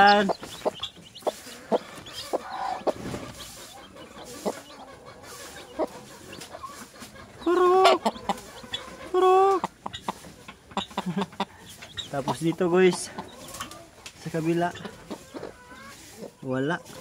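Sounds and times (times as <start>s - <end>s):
hen calling: 0.0s - 13.8s.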